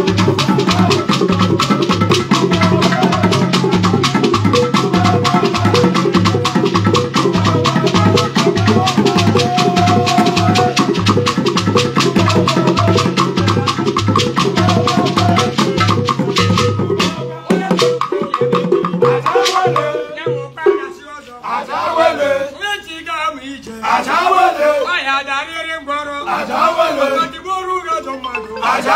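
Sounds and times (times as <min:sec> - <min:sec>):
shaker rattling: 0:00.0 - 0:17.2
hand drums beaten with sticks: 0:00.0 - 0:21.0.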